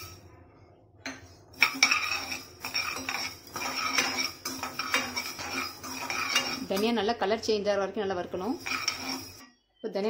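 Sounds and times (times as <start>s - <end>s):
spatula scraping seeds in a pan: 1.5s - 7.0s, 8.3s - 9.4s.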